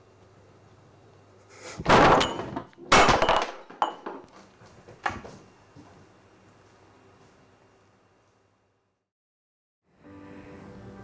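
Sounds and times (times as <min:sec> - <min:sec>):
bottle knocked over on wooden table: 0:01.9 - 0:04.2.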